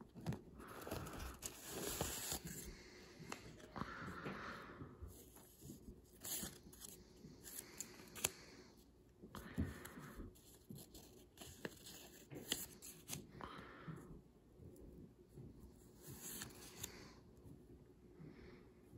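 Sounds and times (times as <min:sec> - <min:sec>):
paper rustling and crinkling: 0:00.0 - 0:03.7.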